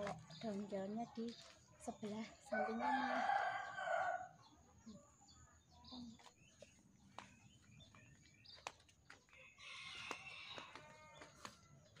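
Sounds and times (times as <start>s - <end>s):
faint rooster crowing: 2.5s - 5.1s, 9.3s - 12.0s.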